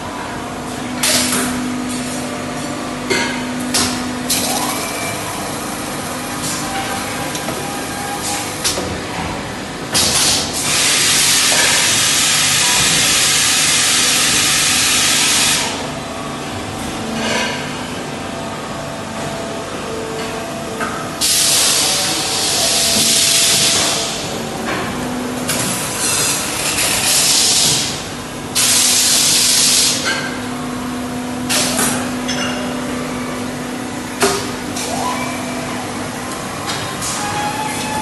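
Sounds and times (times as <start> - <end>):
steady machine hum: 0.0 - 38.0.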